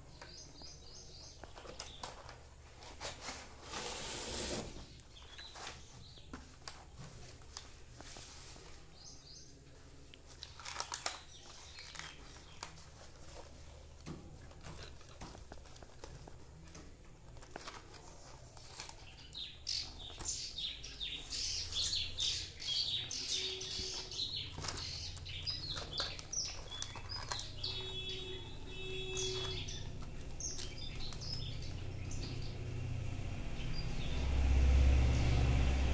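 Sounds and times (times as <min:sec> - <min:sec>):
small birds chirping: 0:00.0 - 0:03.0, 0:04.7 - 0:34.6
plastic packaging rustling: 0:09.7 - 0:20.6, 0:23.1 - 0:31.7.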